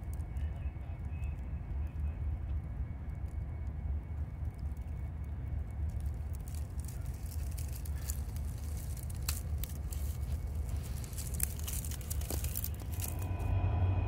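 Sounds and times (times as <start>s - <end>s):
steady low rumble: 0.0s - 14.0s
light crackles and rubbing: 5.8s - 13.3s.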